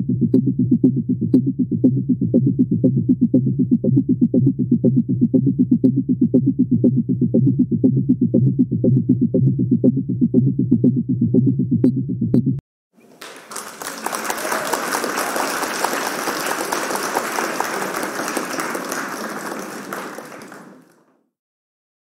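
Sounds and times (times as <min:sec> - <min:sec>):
electronic countdown music: 0:00.0 - 0:12.6
applause: 0:13.0 - 0:21.2.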